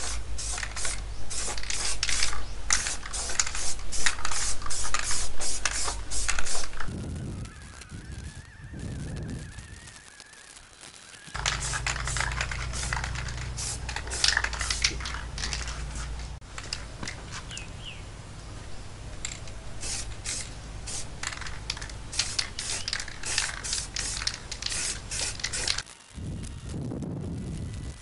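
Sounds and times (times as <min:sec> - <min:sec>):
spray can hissing bursts: 0:00.0 - 0:06.9, 0:11.3 - 0:16.4, 0:19.8 - 0:25.9.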